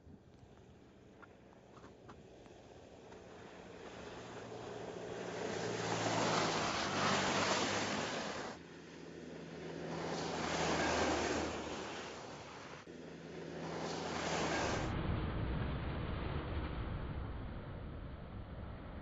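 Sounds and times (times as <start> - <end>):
car engine: 0.8 - 15.1
tyres hissing in snow: 2.5 - 8.6, 9.9 - 12.9, 13.7 - 14.9.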